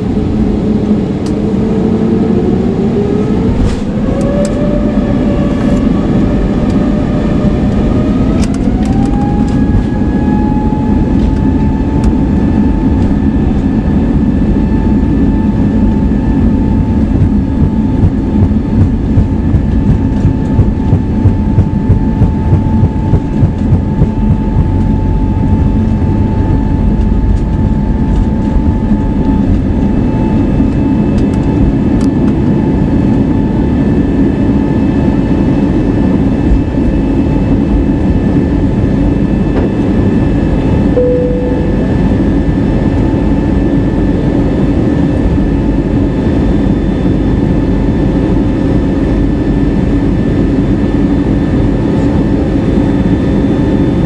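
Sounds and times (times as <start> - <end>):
engine hum: 0.0 - 54.0
wheels rumbling on runway: 0.0 - 54.0
brief single tone: 41.0 - 42.6.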